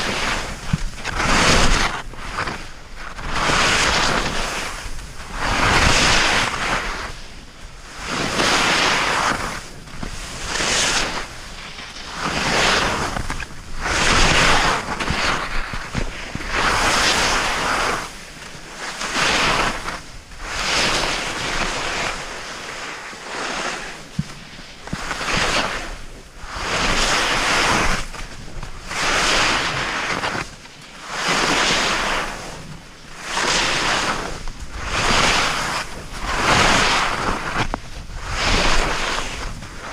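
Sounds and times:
skis scraping over snow: 0.0 - 39.9
wind on microphone: 0.0 - 39.9.

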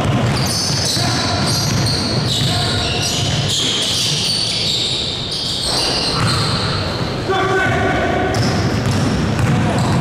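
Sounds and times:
basketball bouncing: 0.0 - 3.6, 5.6 - 6.6, 8.3 - 10.0
sneakers squeaking on floor: 0.0 - 7.3, 8.3 - 10.0.

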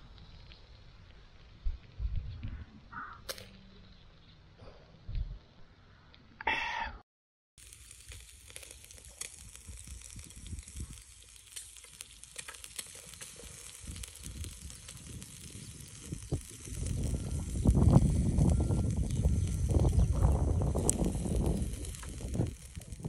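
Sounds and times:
food sizzling on a grill: 7.6 - 23.0.

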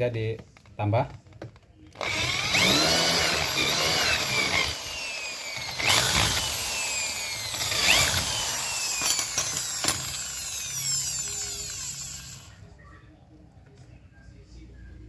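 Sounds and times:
electric drill boring into plastic: 2.0 - 12.5.

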